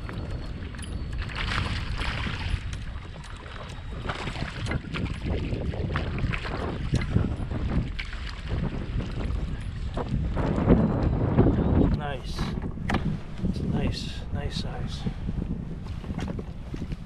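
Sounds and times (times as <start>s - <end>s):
water sloshing against kayak: 0.0s - 13.9s
wind buffeting microphone: 0.0s - 17.0s
short splashes: 1.2s - 3.5s.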